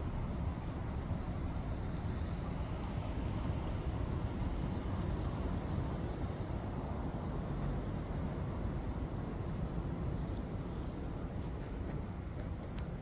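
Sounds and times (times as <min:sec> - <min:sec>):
city street background rumble: 0:00.0 - 0:13.0.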